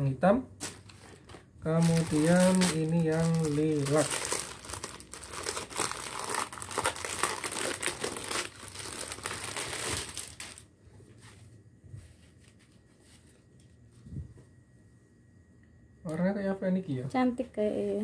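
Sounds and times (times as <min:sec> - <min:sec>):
plastic bag crinkling: 0:00.6 - 0:10.7.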